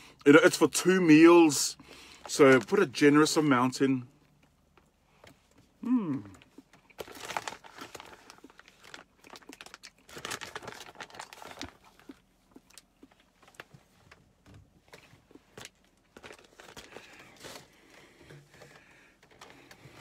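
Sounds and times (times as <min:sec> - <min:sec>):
plastic packaging crinkling: 0:06.9 - 0:14.2, 0:14.9 - 0:17.8.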